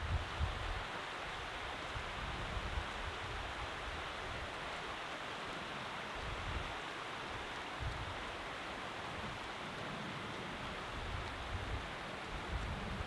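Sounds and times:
wind rumble on microphone: 0:00.0 - 0:00.9, 0:01.8 - 0:04.6, 0:06.2 - 0:06.8, 0:07.7 - 0:08.4, 0:09.0 - 0:13.0
mountain river rushing: 0:00.0 - 0:13.0.

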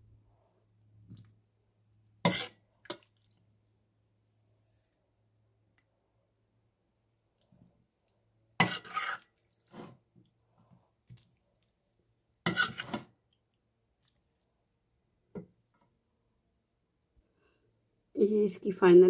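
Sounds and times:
metal ladle scraping pot: 0:02.2 - 0:03.0, 0:08.6 - 0:10.0, 0:12.4 - 0:13.1
wet plops of food: 0:02.7 - 0:03.6.

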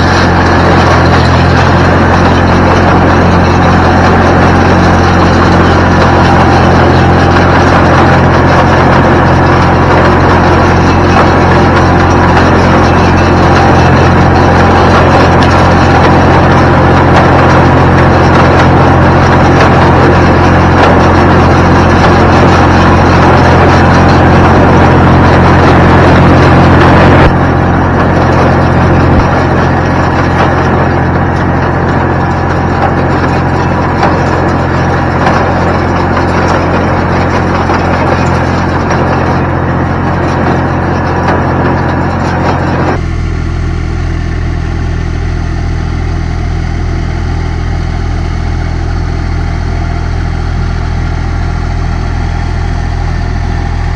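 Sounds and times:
hay baler clattering: 0:00.0 - 0:43.1
tractor engine running under load: 0:00.0 - 0:53.9.

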